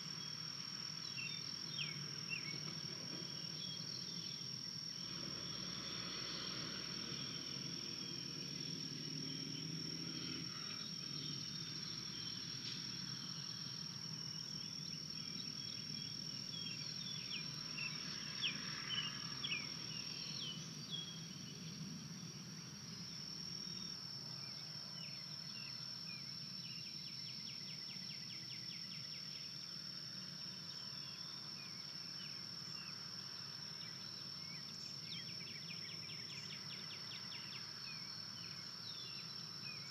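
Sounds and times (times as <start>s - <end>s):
high-pitched insect drone: 3.3s - 29.8s.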